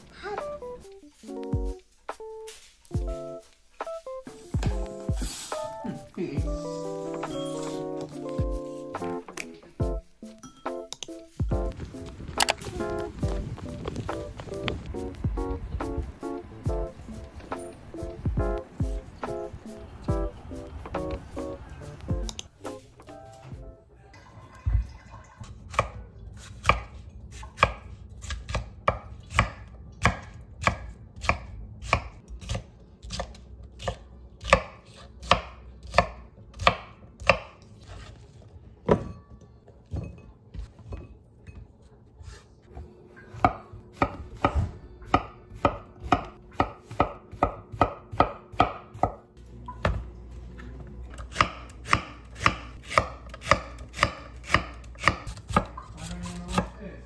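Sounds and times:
knife chopping on cutting board: 25.7s - 38.0s, 43.3s - 49.2s, 51.2s - 56.7s.

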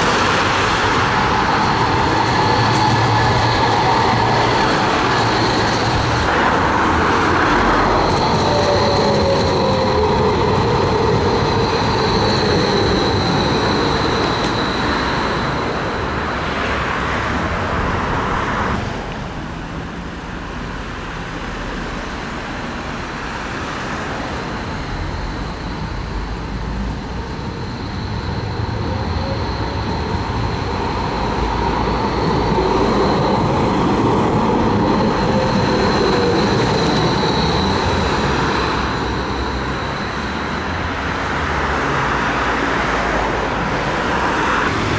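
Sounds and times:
tram motors whining: 0.0s - 16.6s, 23.4s - 44.9s
road traffic: 0.0s - 44.9s
steel wheels rumbling on rails: 0.0s - 44.9s.

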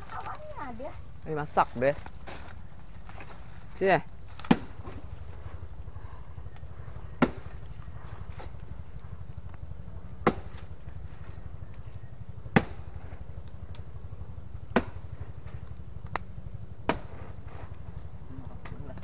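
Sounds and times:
steady low hum: 0.0s - 19.0s
blade chopping plant trunk: 4.3s - 5.1s, 7.1s - 8.7s, 10.2s - 11.0s, 12.4s - 13.2s, 14.6s - 17.7s.

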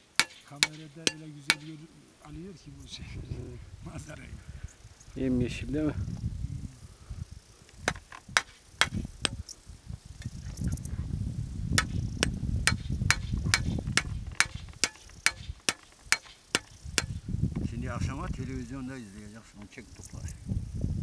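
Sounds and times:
hammer tapping metal blade: 0.2s - 1.7s, 12.7s - 13.7s, 14.4s - 17.1s.

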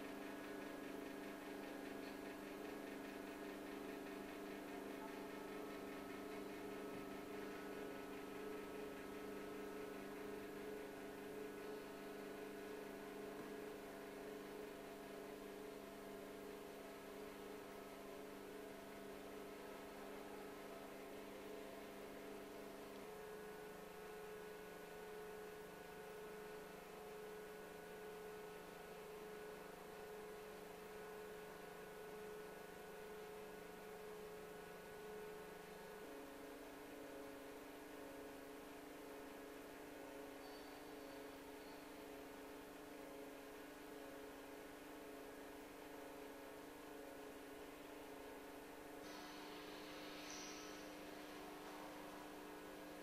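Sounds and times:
electrical equipment humming: 0.0s - 53.0s
light hiss: 49.0s - 52.7s.

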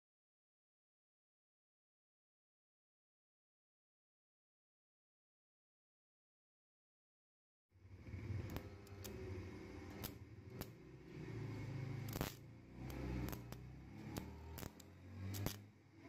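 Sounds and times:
arc welder crackling: 8.0s - 16.0s.

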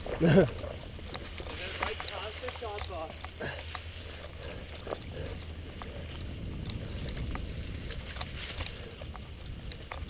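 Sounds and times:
mountain bike rolling on dirt: 0.0s - 10.0s
tyres ticking over dry leaves: 0.0s - 10.0s.

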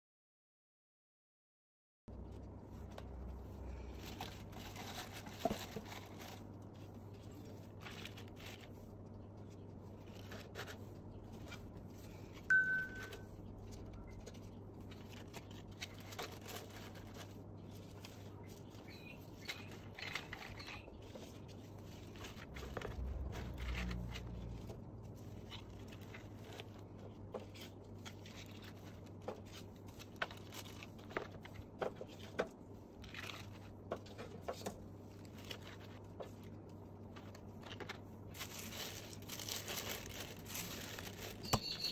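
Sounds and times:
steady low hum: 2.1s - 41.3s
paper rustling: 2.2s - 41.9s
short high beep: 12.5s - 13.2s.

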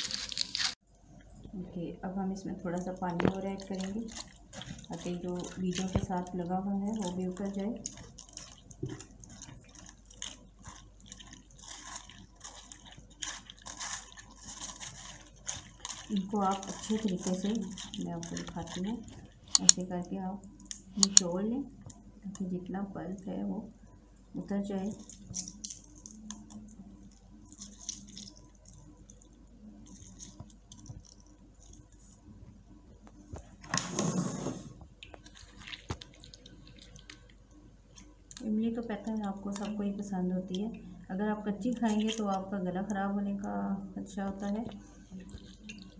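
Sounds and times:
wet squelches of mashed pulp: 2.7s - 19.8s, 35.0s - 39.8s, 44.3s - 45.9s
liquid dripping into steel bowl: 19.5s - 19.8s.

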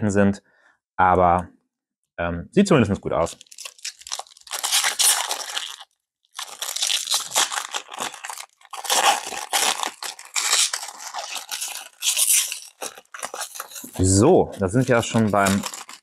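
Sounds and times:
card pack wrapper crinkling and tearing: 3.2s - 16.0s.

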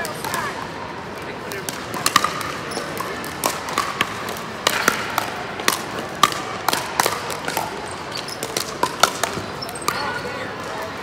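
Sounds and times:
paddles hitting plastic ball: 0.0s - 0.7s, 1.5s - 10.9s
ball bouncing on concrete: 1.6s - 10.1s.

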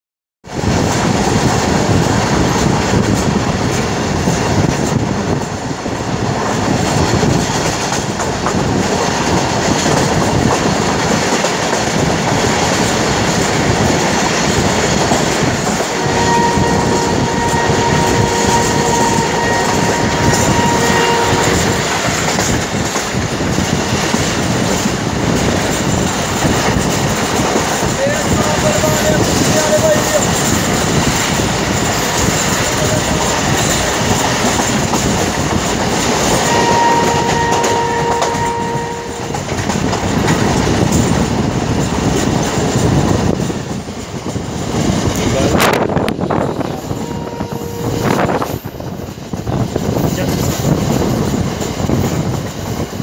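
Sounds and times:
train wheels rumbling on rails: 0.4s - 53.0s
train horn: 15.9s - 22.2s, 36.3s - 39.5s, 46.9s - 48.5s.

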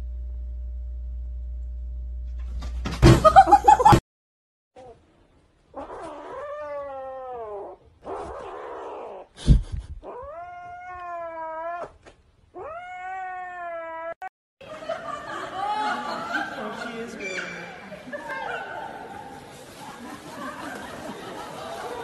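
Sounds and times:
thump: 2.5s - 3.4s
kitten yowling: 5.8s - 9.3s, 10.0s - 12.0s, 12.6s - 14.2s.

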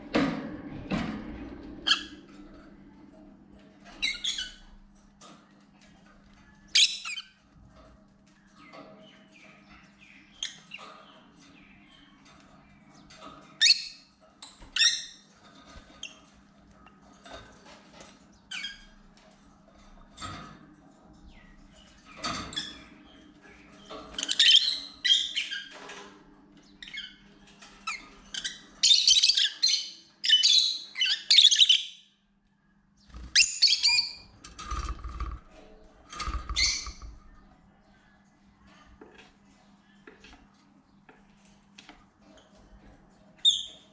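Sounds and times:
lovebirds chirping and squawking: 1.8s - 2.4s, 3.8s - 4.9s, 6.4s - 7.6s, 8.2s - 16.4s, 21.2s - 26.0s, 26.6s - 32.2s, 33.0s - 38.8s, 42.2s - 43.9s.

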